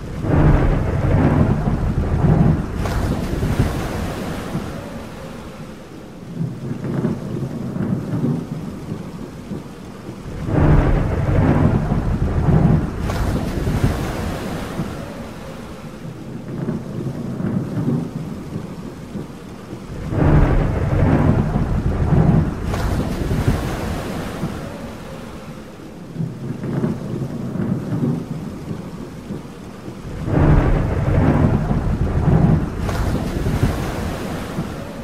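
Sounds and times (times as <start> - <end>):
sharp thunder crack: 0.0 - 4.8, 10.2 - 15.3, 19.9 - 24.8, 30.0 - 34.8
thunder rolling: 0.0 - 5.5, 6.4 - 25.4, 26.2 - 35.0
rain hiss: 0.0 - 35.0.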